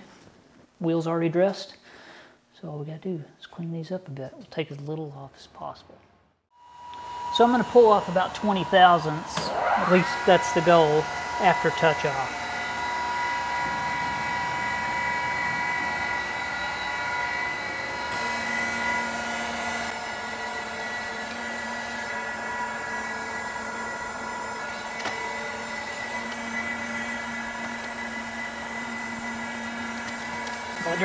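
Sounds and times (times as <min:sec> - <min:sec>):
surface grinder whining: 0:06.6 - 0:31.0.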